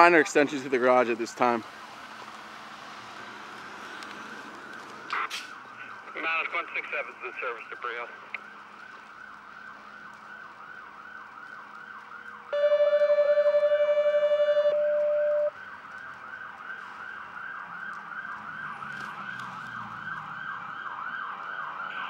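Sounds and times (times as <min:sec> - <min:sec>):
fire engine siren yelping: 0:04.8 - 0:22.0
loud steady horn tone: 0:12.5 - 0:15.6.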